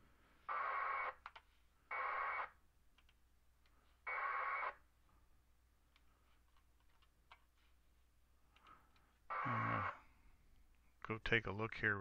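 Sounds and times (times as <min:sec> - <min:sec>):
radio data burst screech: 0:00.5 - 0:01.2, 0:04.1 - 0:04.8, 0:09.3 - 0:10.1.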